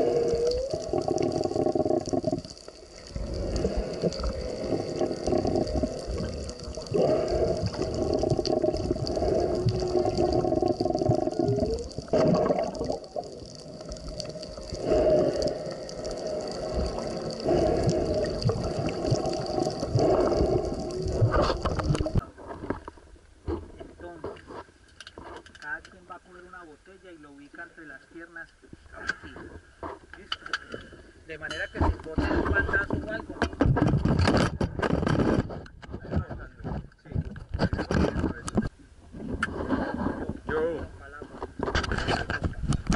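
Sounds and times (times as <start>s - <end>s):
whale song underwater: 0.0s - 22.2s.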